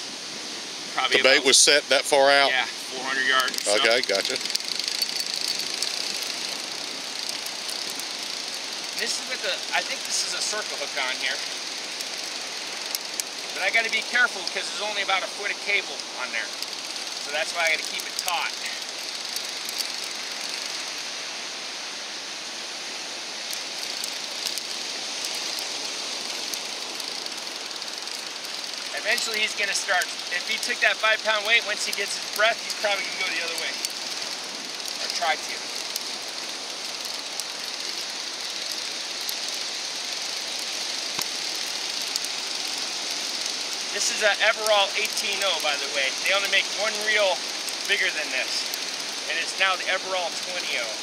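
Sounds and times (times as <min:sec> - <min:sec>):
ocean surf washing on beach: 0:00.0 - 0:51.0
wind: 0:00.0 - 0:51.0
faint sharp clicks: 0:40.6 - 0:42.3.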